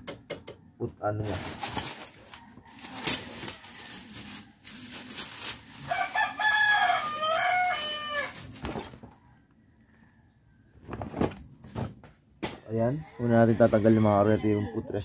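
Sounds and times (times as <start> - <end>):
rooster crowing: 5.8 - 10.7, 13.0 - 15.0.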